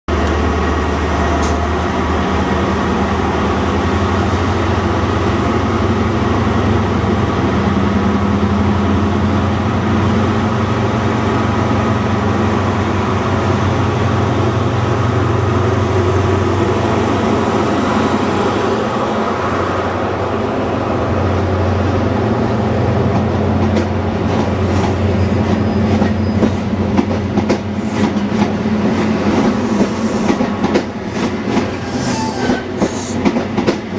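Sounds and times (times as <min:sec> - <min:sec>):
diesel train engine droning: 0:00.1 - 0:33.9
train wheels clicking over rail joints: 0:23.1 - 0:33.9.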